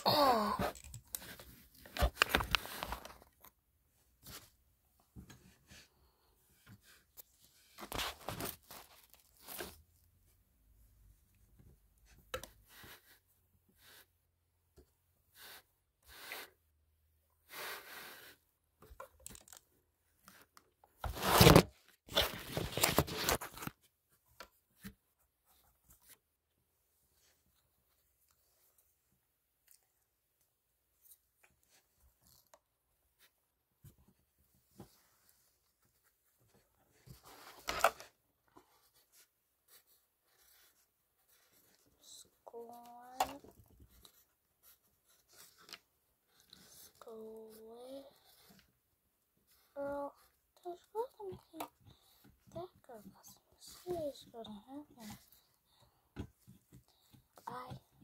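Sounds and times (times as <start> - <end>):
phone rustling against clothing: 0.6 - 3.6, 18.9 - 26.2.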